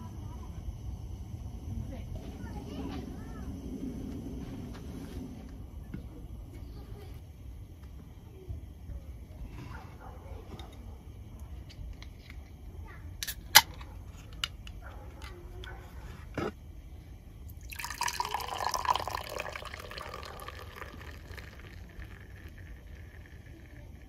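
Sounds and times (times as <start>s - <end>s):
beer fizzing into glass: 17.5s - 24.0s.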